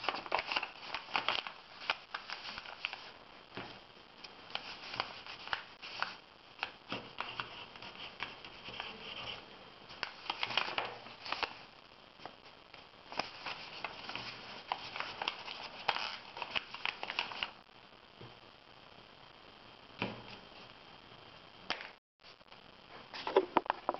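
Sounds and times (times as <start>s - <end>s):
paper rustling and creasing: 0.0s - 3.8s, 4.5s - 11.6s, 13.1s - 17.6s.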